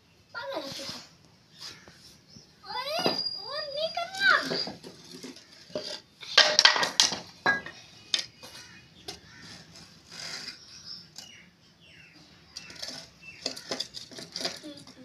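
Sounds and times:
bricks scraping: 4.2s - 7.6s, 9.2s - 11.4s, 12.5s - 15.0s
bricks clinking and knocking: 4.6s - 8.3s, 12.6s - 15.0s.

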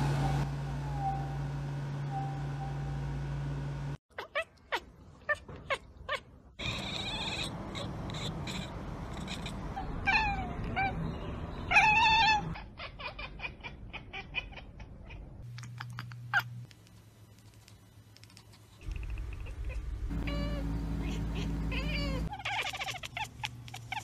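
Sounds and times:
cat meowing yowls: 10.0s - 10.9s, 11.7s - 15.2s
cat clicking chatter: 15.4s - 16.4s, 17.6s - 19.8s, 21.8s - 24.0s.

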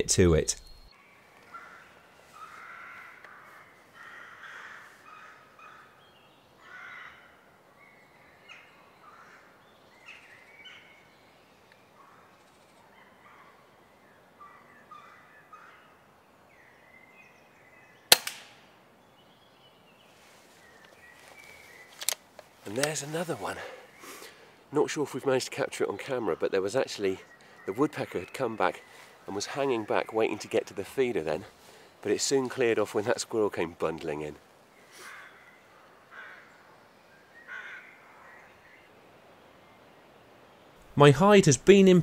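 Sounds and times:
birds calling: 0.0s - 42.0s
air rifle firing: 18.1s - 18.6s.

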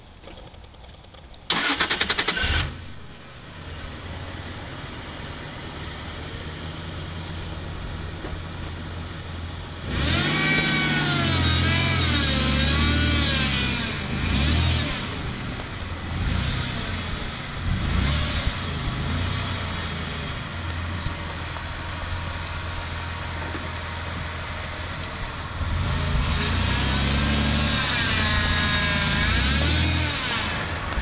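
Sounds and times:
truck engine running low: 2.4s - 31.0s.

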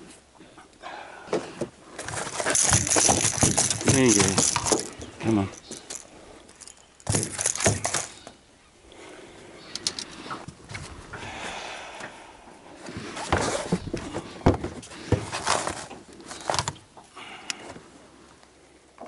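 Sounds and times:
fish flapping on mat: 2.0s - 5.0s.

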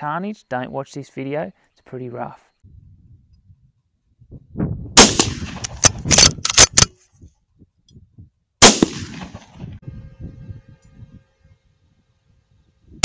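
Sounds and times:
rifle shot with echo: 5.0s - 6.8s, 8.6s - 9.6s.

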